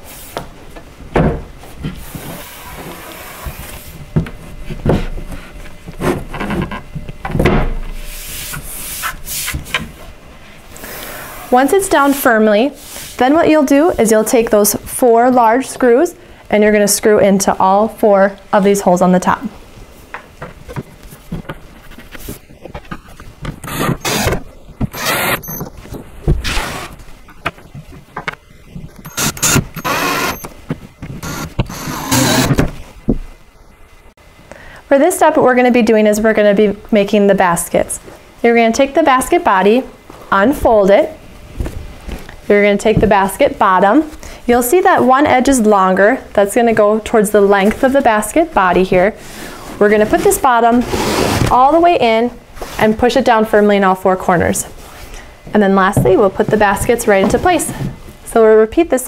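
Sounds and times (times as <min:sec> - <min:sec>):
cordless drill driving screws: 0:23.6 - 0:25.6, 0:29.0 - 0:30.5, 0:31.2 - 0:32.6.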